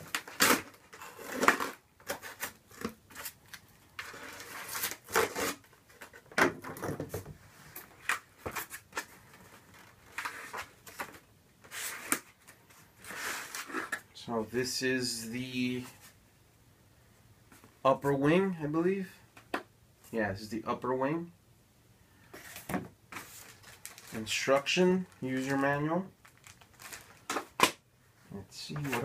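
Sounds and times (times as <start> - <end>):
foam rustling and crackling: 25.1 - 27.3.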